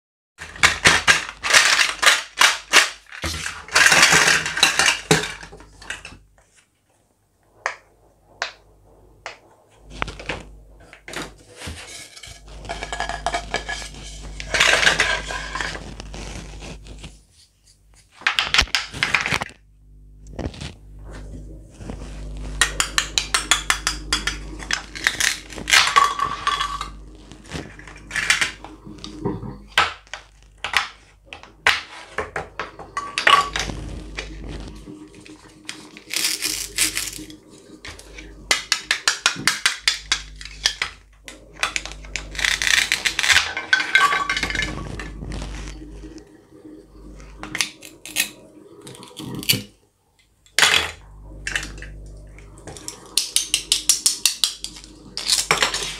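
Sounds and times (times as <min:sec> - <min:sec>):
plastic toys clattering: 0:00.4 - 0:06.2, 0:10.1 - 0:15.9, 0:22.6 - 0:34.4, 0:35.6 - 0:46.2, 0:52.7 - 0:55.9.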